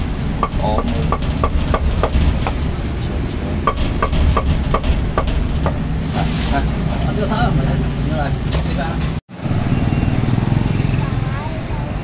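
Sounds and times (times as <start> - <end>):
cleaver chopping on wooden block: 0.4 - 2.6, 3.7 - 5.8.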